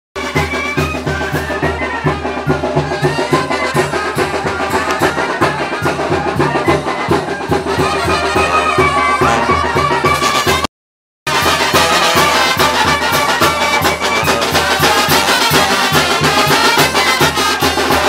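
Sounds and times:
brass band playing: 0.2 - 10.7, 11.3 - 18.0
drums: 0.2 - 10.7, 11.3 - 18.0
tuba bass beat: 7.6 - 10.6, 11.3 - 18.0.

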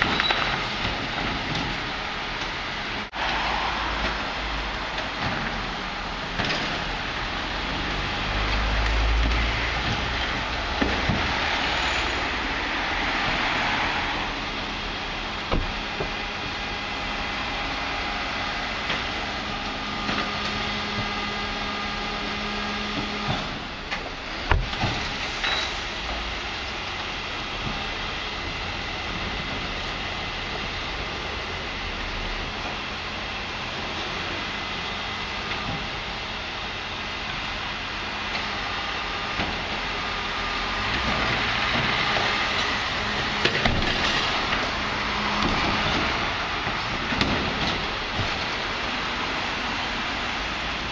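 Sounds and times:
garbage truck hum: 0.0 - 50.9
cars driving past: 2.5 - 26.7, 40.2 - 50.9.

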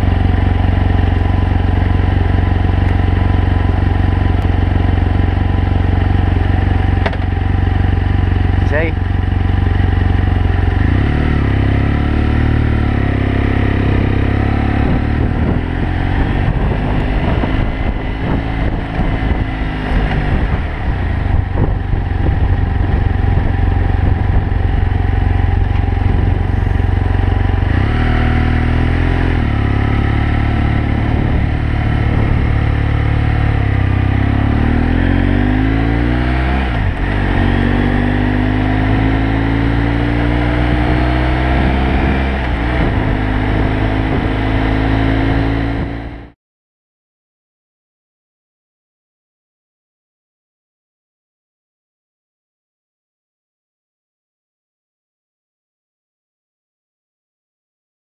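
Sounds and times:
motorcycle engine running: 0.0 - 46.4.

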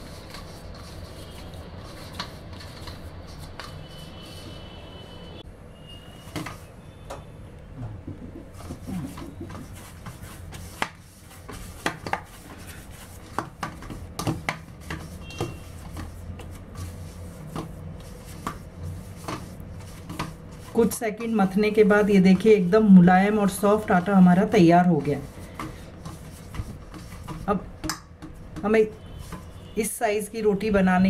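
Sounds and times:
dough being kneaded by hand: 0.0 - 4.8, 8.0 - 29.9
low steady hum: 6.8 - 10.6.

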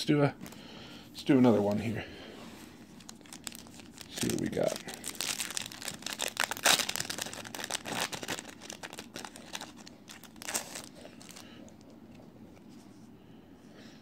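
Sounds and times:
foil wrapper tearing and crinkling: 3.0 - 11.6.

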